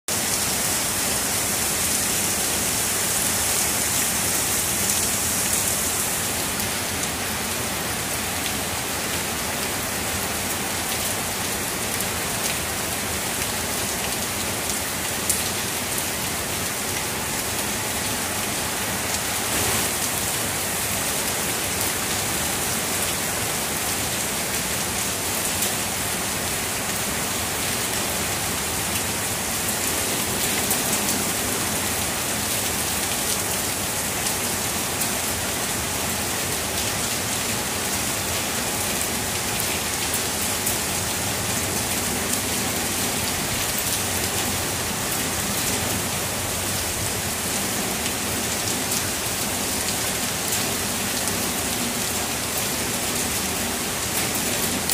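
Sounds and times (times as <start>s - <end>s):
heavy rain hissing: 0.1s - 11.8s, 16.5s - 24.9s
sharp raindrop hits: 19.4s - 20.7s.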